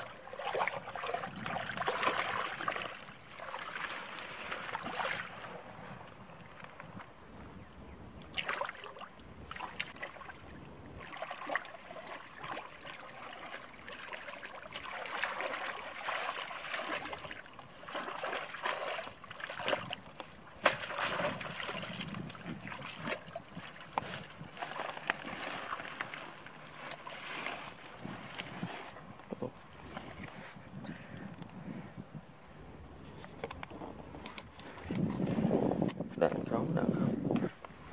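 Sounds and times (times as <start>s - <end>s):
splashing through muddy water: 0.0s - 7.1s, 8.2s - 30.2s.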